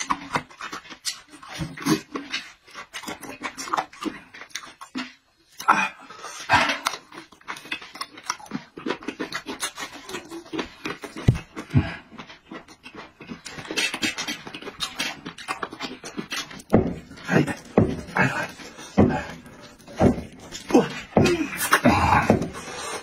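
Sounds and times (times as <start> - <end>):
wet chewing and lip-smacking: 0.0 - 23.0
dull thumps: 16.6 - 22.7.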